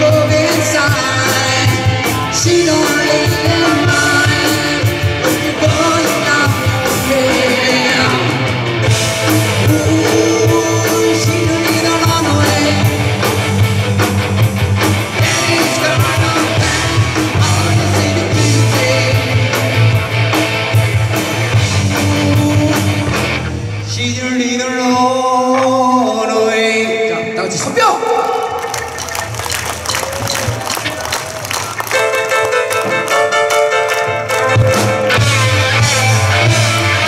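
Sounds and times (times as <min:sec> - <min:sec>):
lead vocalist singing: 0:00.0 - 0:13.6, 0:15.0 - 0:20.2, 0:21.5 - 0:28.8
live rock band playing: 0:00.0 - 0:24.2, 0:28.2 - 0:37.0.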